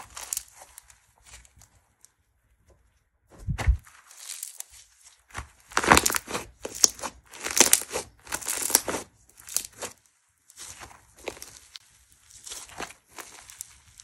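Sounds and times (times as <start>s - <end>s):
low thump: 3.3s - 3.8s
slime squished by hand: 3.6s - 14.0s.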